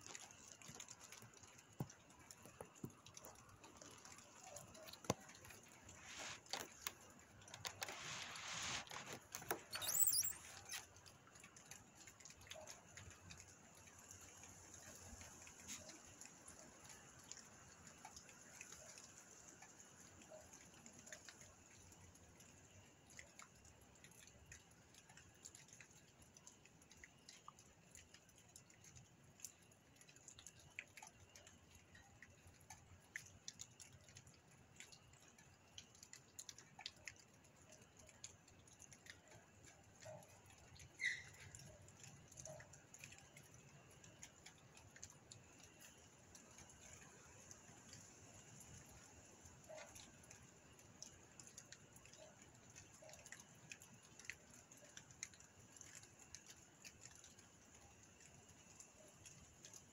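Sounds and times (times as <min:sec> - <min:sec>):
faint ticks and patters: 0:00.0 - 0:59.9
squeaky click: 0:05.8 - 0:11.0, 0:40.9 - 0:41.8.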